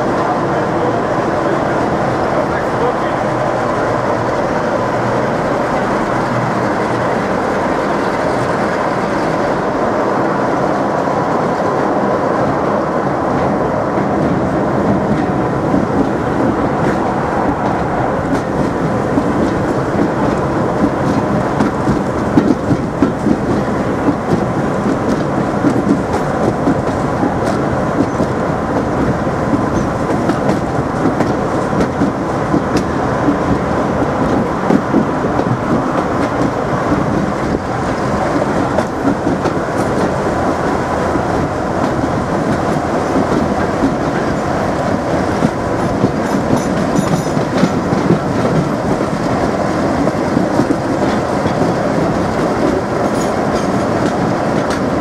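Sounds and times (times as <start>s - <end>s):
train wheels rumbling on rail: 0.0s - 55.0s
wheels clattering over rail joints: 12.7s - 55.0s.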